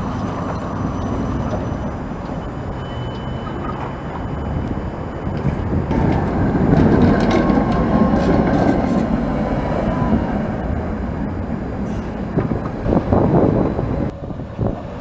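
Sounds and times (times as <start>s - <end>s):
wheels clicking over rail joints: 0.0s - 9.8s
tram wheels running on rails: 0.0s - 15.0s.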